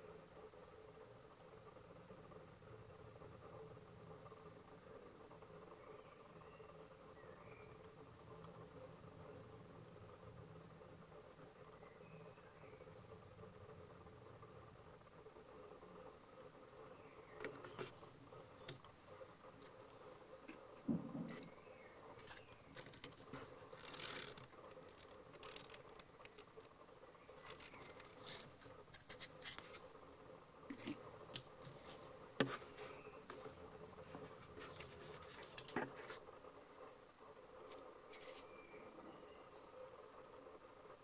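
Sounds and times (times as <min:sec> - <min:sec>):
faint steady hum: 0:00.0 - 0:41.0.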